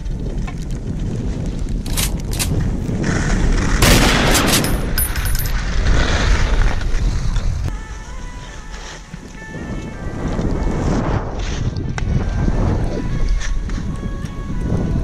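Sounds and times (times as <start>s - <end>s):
wind buffeting microphone: 0.0s - 15.0s
skis scraping on snow: 5.6s - 13.9s.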